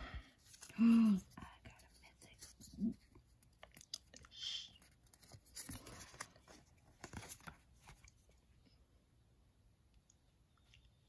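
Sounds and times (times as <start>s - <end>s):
cards being shuffled: 4.8s - 8.2s.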